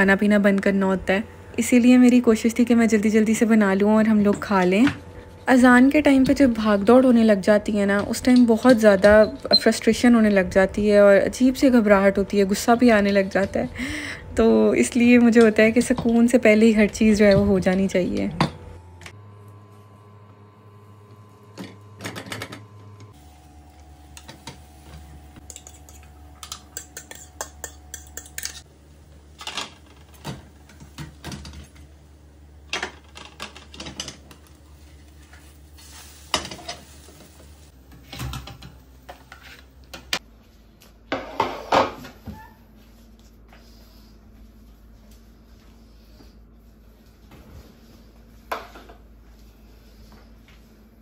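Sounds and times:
steady low hum: 0.0 - 38.0
spatula and pan clinking: 25.5 - 28.6.

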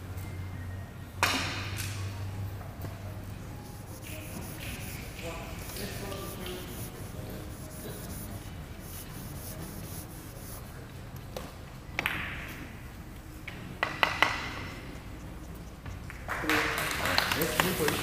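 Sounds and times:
rustling murmur: 2.9 - 11.2.

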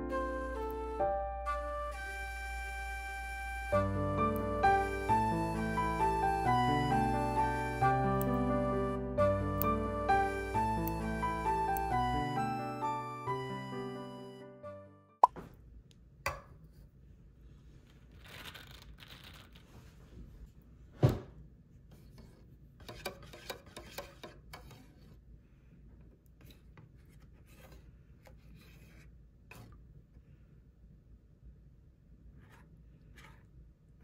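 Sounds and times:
spatula scraping metal can: 22.8 - 25.2.

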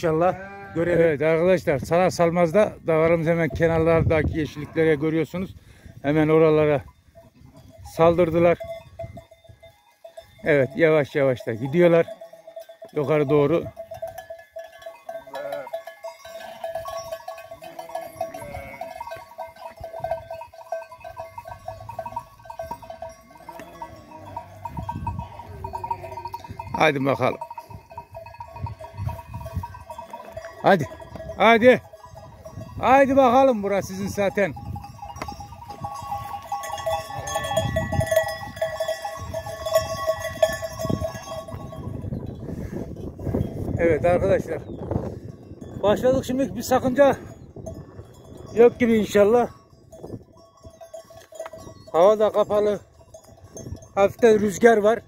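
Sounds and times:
sheep and goats bleating: 0.0 - 1.5, 3.3 - 5.3, 15.0 - 32.0
livestock bells jingling: 0.0 - 55.0
wind rumbling on microphone: 2.7 - 4.8, 6.8 - 9.7, 24.4 - 26.8, 27.4 - 33.3, 34.0 - 51.9.

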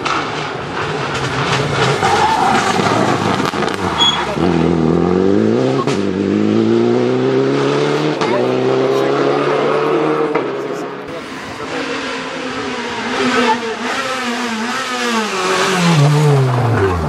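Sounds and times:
rally car engine accelerating: 0.0 - 17.0
tyres sliding on gravel: 0.2 - 4.4.

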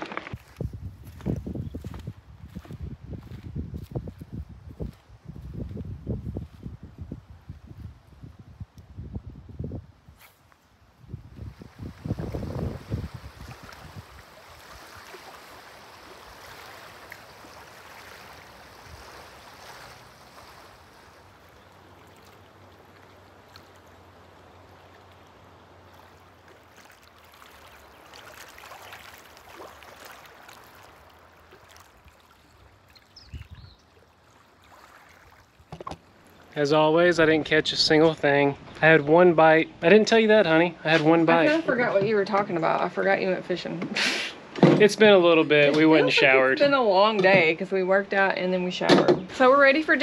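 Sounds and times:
water at a lakeshore: 0.0 - 50.0
wind: 0.0 - 50.0.

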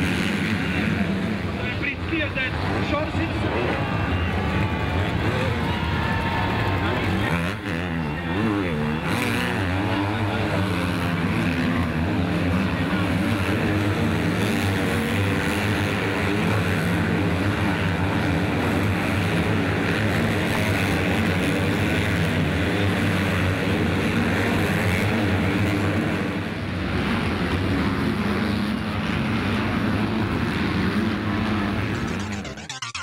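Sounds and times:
motocross bikes racing: 0.0 - 33.0.

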